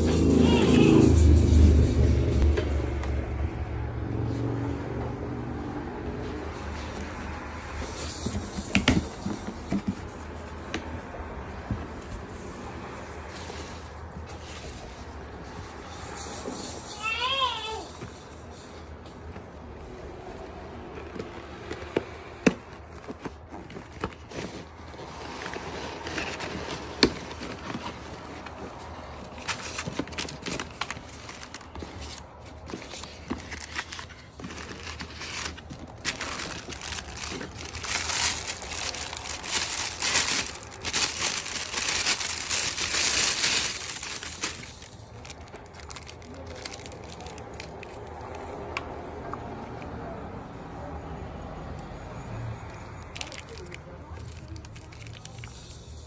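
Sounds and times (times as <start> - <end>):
packing peanuts and cardboard rustling: 6.5 - 16.4, 19.8 - 48.5, 52.8 - 56.0
plastic wrapping crinkling: 22.8 - 48.4, 53.0 - 55.8.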